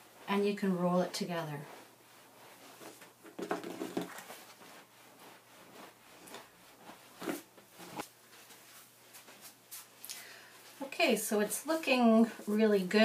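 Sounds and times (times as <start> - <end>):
hands scrubbing wet felt: 0.0 - 10.0.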